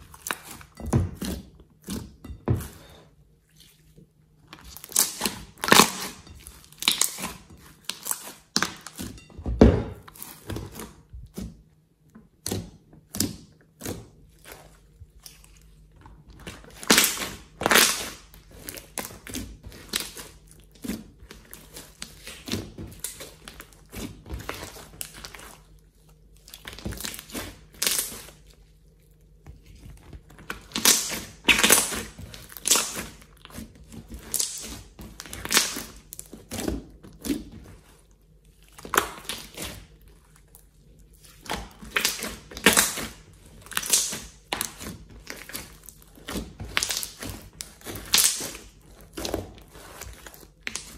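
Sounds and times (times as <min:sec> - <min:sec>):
slime crackling and popping: 0:04.6 - 0:09.3, 0:16.4 - 0:28.5, 0:30.3 - 0:37.6, 0:38.5 - 0:50.9.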